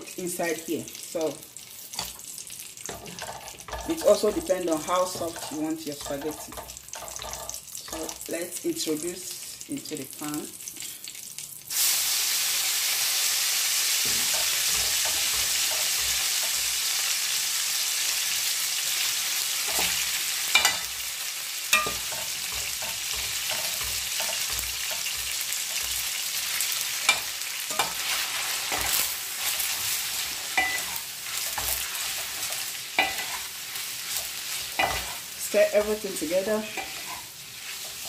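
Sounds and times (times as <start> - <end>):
pasta sizzling in a frying pan: 0.0 - 38.0
tongs and spoon knocking pan: 2.8 - 8.3, 14.0 - 16.8, 19.7 - 21.0, 21.7 - 33.5, 34.2 - 35.2, 36.7 - 38.0.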